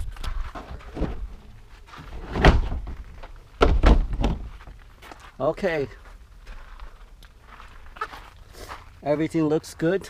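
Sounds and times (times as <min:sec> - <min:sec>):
plastic shed door thudding: 0:02.1 - 0:04.6
door knocks and rattles: 0:03.6 - 0:04.5.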